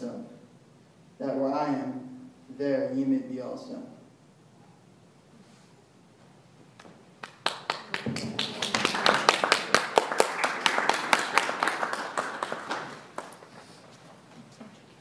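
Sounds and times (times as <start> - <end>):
crowd applauding: 7.2 - 13.8.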